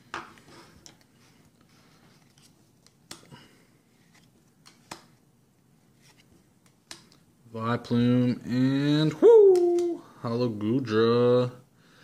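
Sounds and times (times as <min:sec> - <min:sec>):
cards rustling: 0:00.3 - 0:03.3.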